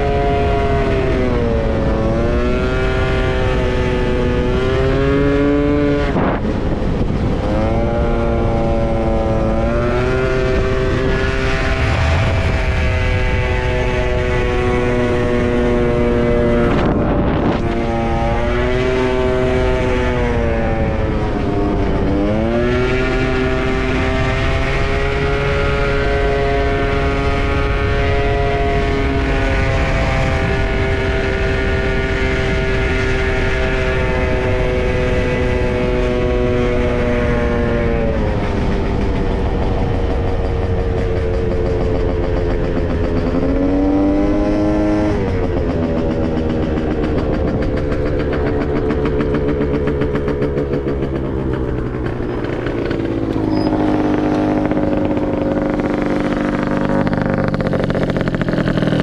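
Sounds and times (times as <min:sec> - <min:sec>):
scooter engine running: 0:00.0 - 0:59.0
wind rumbling on microphone: 0:00.0 - 0:59.0.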